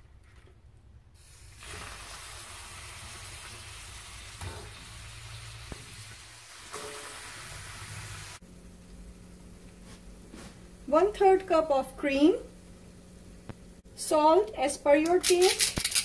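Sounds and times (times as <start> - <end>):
sauce sizzling in a frying pan: 1.2 - 8.4.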